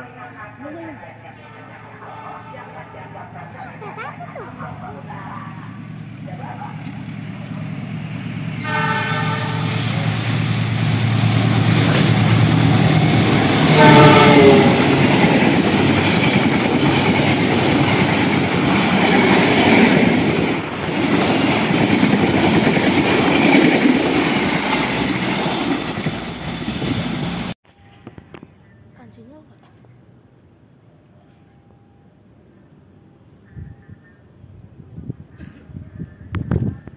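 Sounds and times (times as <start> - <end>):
train wheel rumble and rail clatter: 1.8 - 28.4, 34.8 - 36.9
diesel locomotive engine running: 2.1 - 27.6
train horn blasts: 8.6 - 10.0, 13.6 - 15.3.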